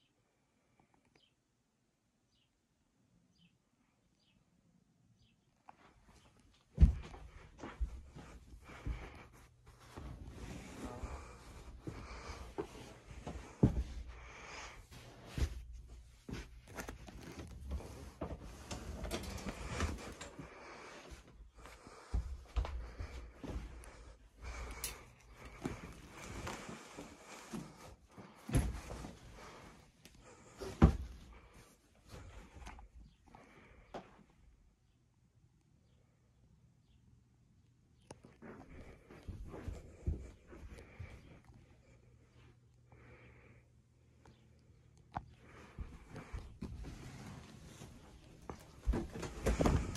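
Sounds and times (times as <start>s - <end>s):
rustling and handling noise: 5.7s - 33.2s, 44.8s - 49.9s
sofa bed frame scraping and rustling: 9.7s - 14.1s, 14.9s - 20.3s, 46.2s - 49.9s.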